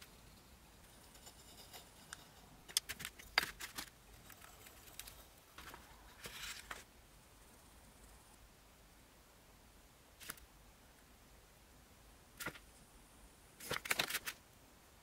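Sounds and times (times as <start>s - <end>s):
caliper scratching metal: 0.0s - 2.6s.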